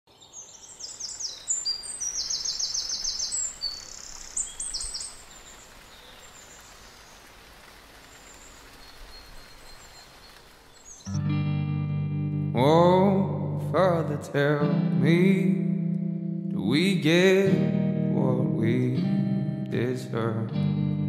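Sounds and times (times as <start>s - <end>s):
birds chirping and trilling: 0.1s - 7.4s, 8.0s - 11.2s
light rain hiss: 0.2s - 11.2s.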